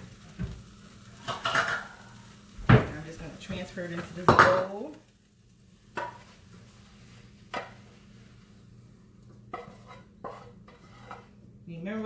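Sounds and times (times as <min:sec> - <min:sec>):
spatula scraping frying pan: 0:01.2 - 0:02.2, 0:05.9 - 0:08.6, 0:09.4 - 0:11.5.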